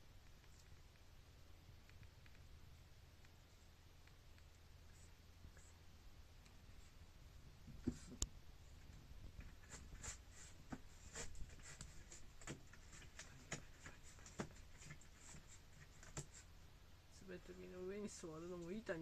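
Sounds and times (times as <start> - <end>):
cat paws tapping on wooden floor: 9.3 - 16.5.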